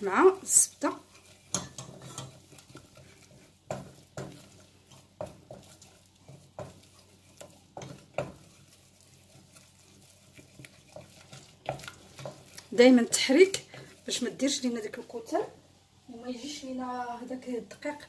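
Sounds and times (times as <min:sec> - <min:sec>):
wooden spatula scraping saucepan: 0:00.0 - 0:15.6
spatula knocking against pan: 0:01.5 - 0:08.5.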